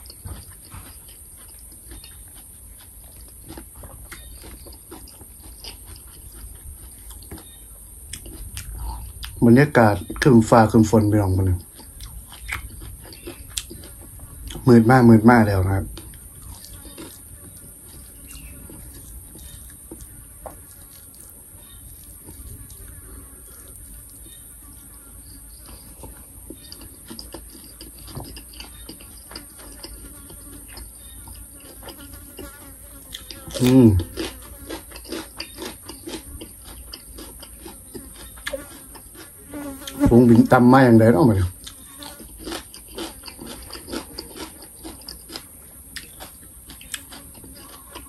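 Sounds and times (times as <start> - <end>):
chewing with wet clicks: 0.0 - 9.4, 10.0 - 24.5, 25.2 - 40.0, 41.5 - 48.0
steady high-pitched hiss: 6.0 - 12.6.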